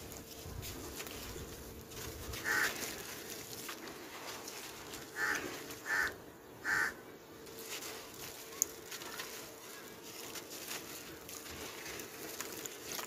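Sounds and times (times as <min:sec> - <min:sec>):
gritty trickling: 0:00.0 - 0:05.9, 0:07.4 - 0:13.0
bird calling loudly: 0:05.2 - 0:07.0.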